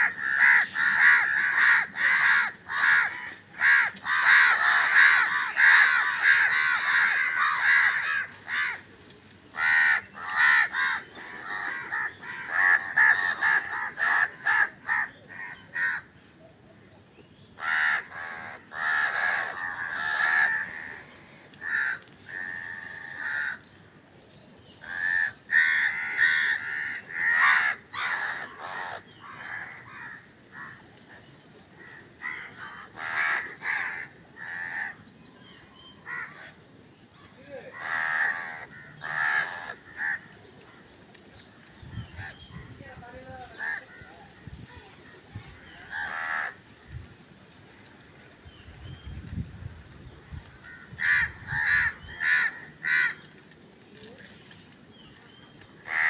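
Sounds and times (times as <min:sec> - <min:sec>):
crows cawing: 0:00.0 - 0:08.9, 0:09.5 - 0:16.1, 0:17.6 - 0:23.7, 0:24.8 - 0:30.9, 0:31.8 - 0:35.0, 0:36.0 - 0:36.6, 0:37.6 - 0:40.4, 0:43.5 - 0:44.1, 0:45.5 - 0:46.8, 0:50.6 - 0:53.4.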